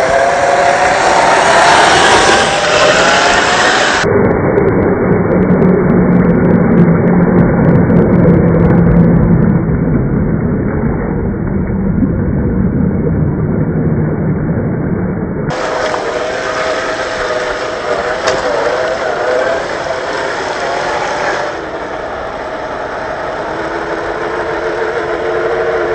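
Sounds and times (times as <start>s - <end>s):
low muffled motor drone: 0.0s - 25.9s.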